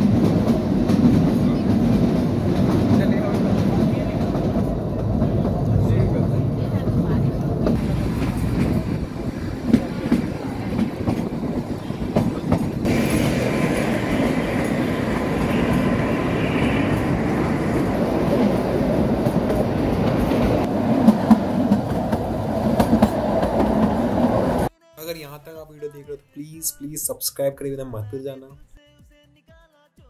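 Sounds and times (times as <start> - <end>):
train wheels knocking over rail joints: 6.9 - 24.4.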